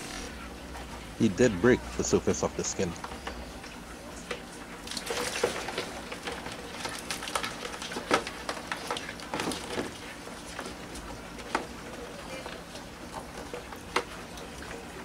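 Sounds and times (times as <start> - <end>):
water splashing in a plastic tub: 4.8 - 15.0.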